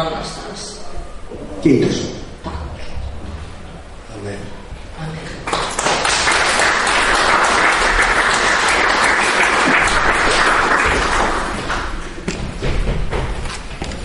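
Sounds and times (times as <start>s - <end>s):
audience applauding: 5.4s - 12.1s.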